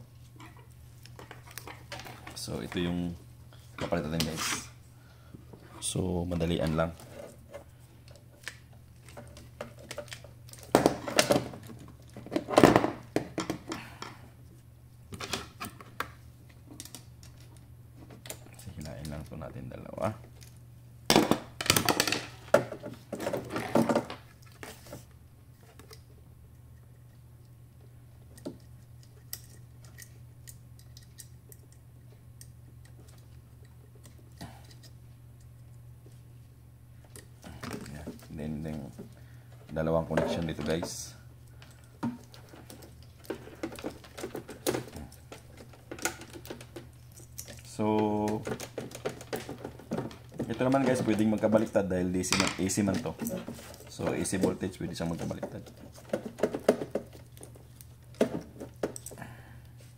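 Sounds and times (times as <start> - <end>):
steady low hum: 0.0 - 59.9
plastic parts clicking and rattling: 37.1 - 59.2
plastic parts clattering: 37.5 - 59.2.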